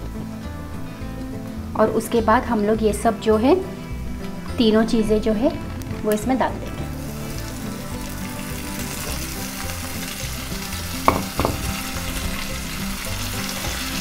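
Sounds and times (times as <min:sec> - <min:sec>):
vegetables sizzling in hot oil: 0:05.8 - 0:14.0
sharp knocks: 0:11.1 - 0:11.8.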